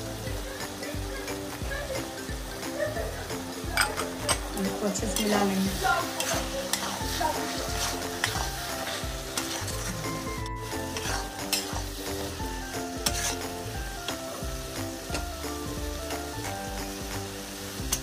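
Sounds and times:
curry sizzling: 0.0s - 18.0s
spatula scraping metal pan: 3.8s - 12.1s, 13.0s - 13.6s.

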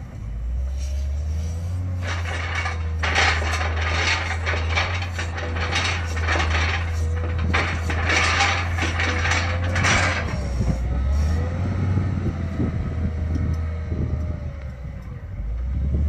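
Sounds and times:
diesel engine droning: 0.0s - 16.0s
loader arms rattling: 0.5s - 12.0s.

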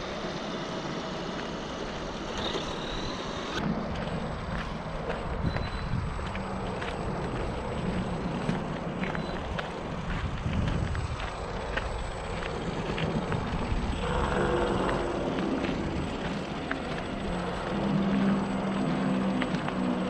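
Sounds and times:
high-pitched motor whine: 0.0s - 20.0s
toy truck electric motor hum: 0.0s - 20.0s.

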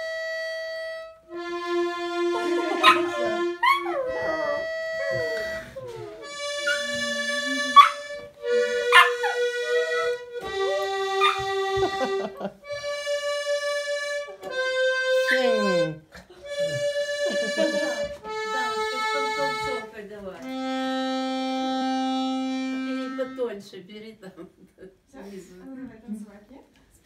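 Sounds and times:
button accordion chords: 0.0s - 23.7s
dog howling and yelping: 3.6s - 6.9s.

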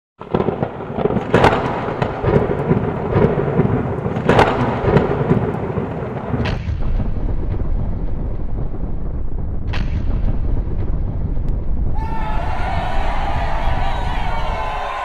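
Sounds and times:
sharp cracks: 0.2s - 12.0s
thunder-like rumbling: 0.2s - 15.0s.

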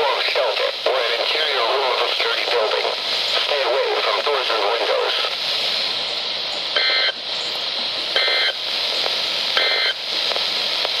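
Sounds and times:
radio static hiss: 0.0s - 11.0s
buzzy two-tone data bursts: 6.0s - 10.2s.

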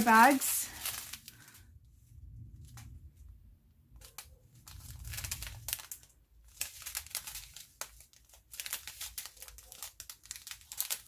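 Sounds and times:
small plastic bags crinkling: 0.0s - 1.7s, 4.0s - 11.0s.

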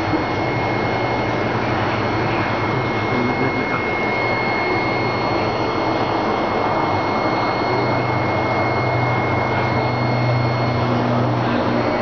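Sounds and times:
faint high whine: 0.0s - 12.0s
low hum: 0.0s - 12.0s.

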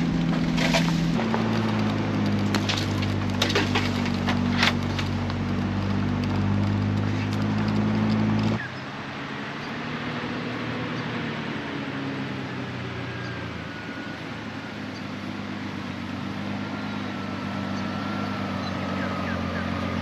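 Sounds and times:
branches scraping against vehicle: 0.0s - 8.7s
vehicle engine running: 0.0s - 20.0s.

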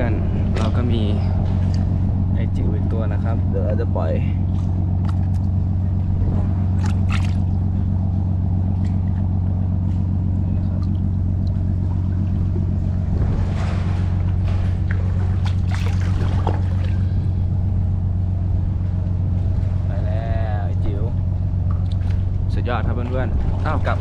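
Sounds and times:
boat engine humming: 0.0s - 24.0s
hand splashing in water: 6.8s - 7.5s, 14.8s - 17.1s.

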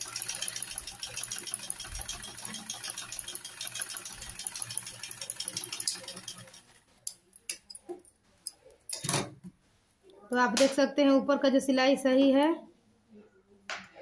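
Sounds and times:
sewing machine clatter: 0.0s - 7.1s.

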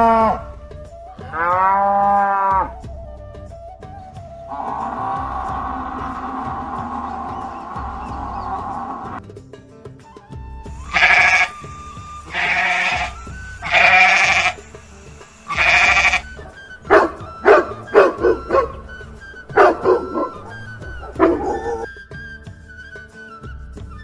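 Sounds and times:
soft background music: 0.0s - 24.0s
goat bleating: 10.8s - 11.6s, 12.2s - 14.6s, 15.4s - 16.4s
dog barking: 16.9s - 18.8s, 19.6s - 21.9s.

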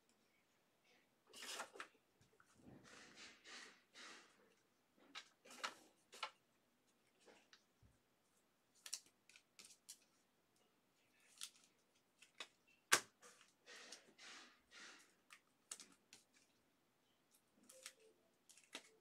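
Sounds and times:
trading cards clicking and rustling: 8.8s - 10.2s, 17.3s - 19.0s.

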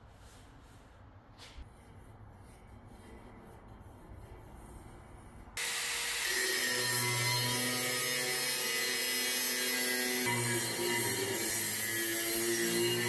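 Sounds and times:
angle grinder grinding steel: 5.6s - 13.0s.

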